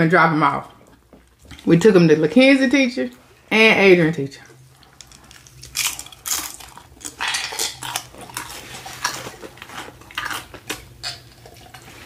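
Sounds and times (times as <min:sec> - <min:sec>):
chips crunching when chewed: 0:04.8 - 0:12.0.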